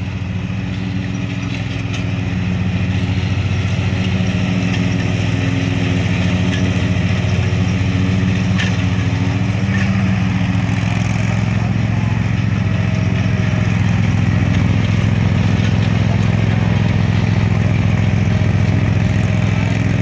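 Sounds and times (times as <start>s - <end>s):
lawn mower engine running: 0.0s - 20.0s.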